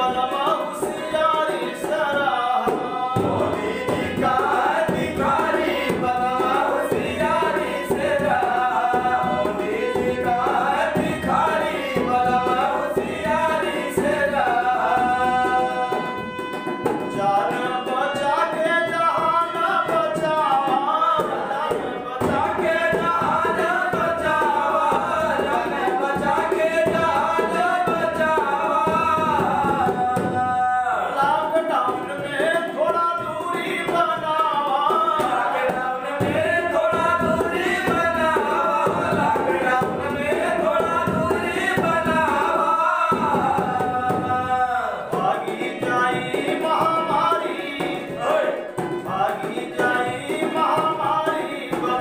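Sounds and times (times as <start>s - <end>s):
harmonium: 0.0s - 52.0s
men singing folk song: 0.0s - 52.0s
hand drum: 2.6s - 30.6s, 31.9s - 52.0s.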